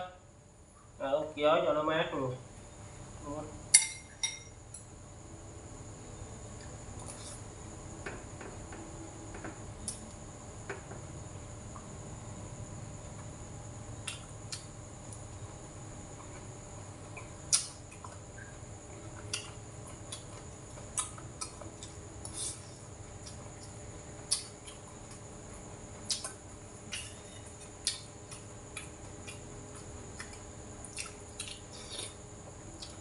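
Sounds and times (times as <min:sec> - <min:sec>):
electric fan humming: 0:00.0 - 0:33.0
chewing clicks and smacks: 0:26.1 - 0:32.2.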